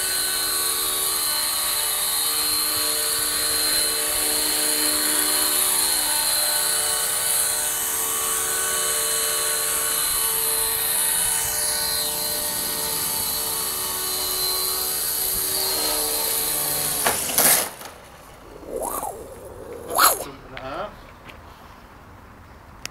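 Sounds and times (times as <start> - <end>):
model helicopter rotor whine: 0.0 - 17.0.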